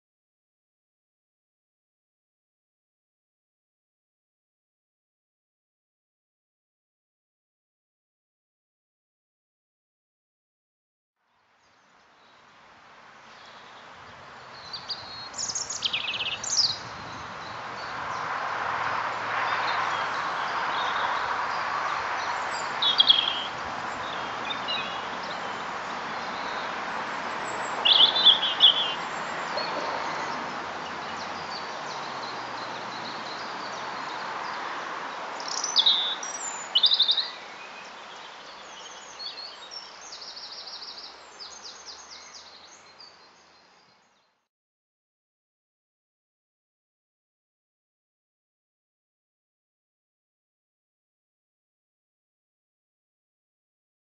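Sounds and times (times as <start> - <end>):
robin singing: 13.2 - 18.3, 19.6 - 44.3.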